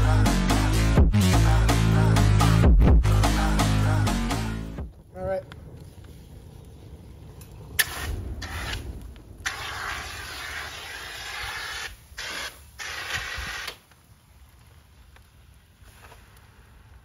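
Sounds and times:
fire extinguisher hissing spray: 7.8 - 13.8.

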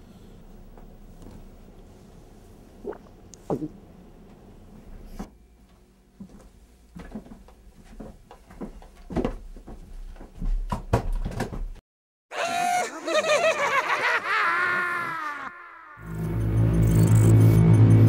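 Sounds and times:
footsteps in small room: 5.1 - 11.8
knocks and thumps: 8.0 - 11.8.

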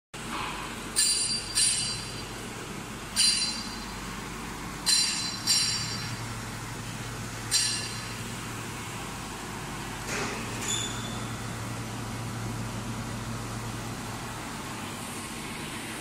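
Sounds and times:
machinery humming: 0.2 - 16.0
ringing metallic clinks: 1.0 - 2.3, 3.2 - 4.0, 4.8 - 6.2, 7.5 - 8.2.

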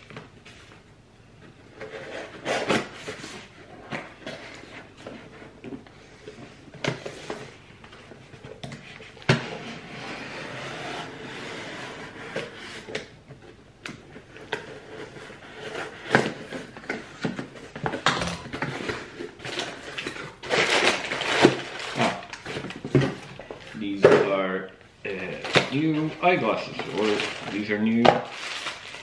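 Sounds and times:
hands rummaging in a box: 25.4 - 29.0.

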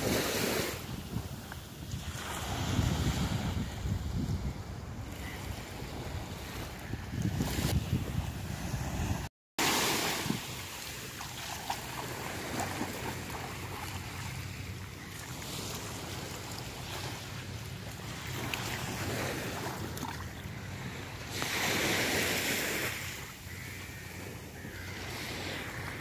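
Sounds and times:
small waves washing on sand: 0.0 - 3.8, 5.2 - 26.0
wind rumbling on microphone: 0.0 - 9.3.

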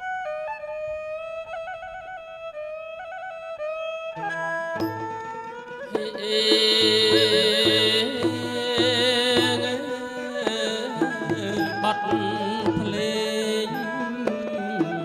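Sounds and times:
bowed fiddle melody with vibrato: 0.0 - 15.0
hand drum steady beat: 6.6 - 9.9, 11.0 - 13.1.

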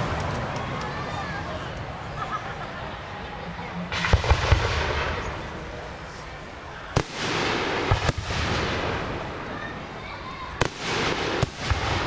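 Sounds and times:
fireworks bursting: 3.9 - 12.0.

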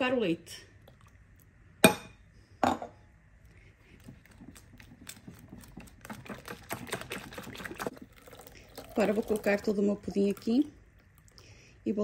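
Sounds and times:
whisk clicking in ceramic bowl: 4.1 - 7.9.

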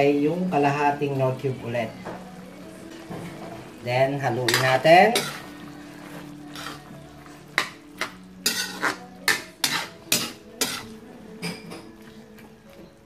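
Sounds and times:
metal spatula scraping a wok: 4.4 - 11.0.

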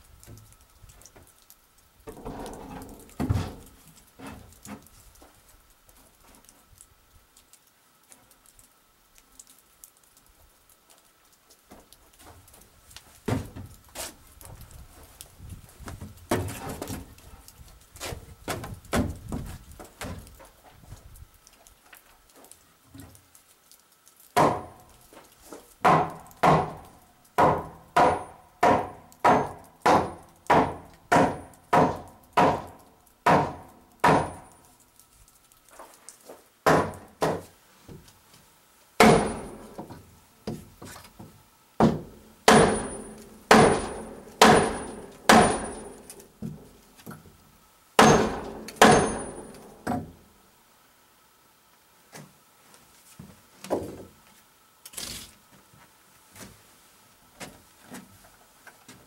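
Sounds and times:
hammer striking timber: 24.4 - 24.8, 25.8 - 34.5, 36.6 - 37.5, 39.0 - 39.9, 41.8 - 46.6, 48.0 - 50.2.

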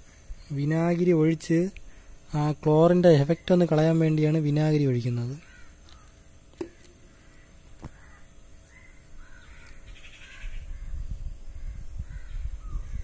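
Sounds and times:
crows cawing: 5.3 - 11.0, 11.6 - 12.7.

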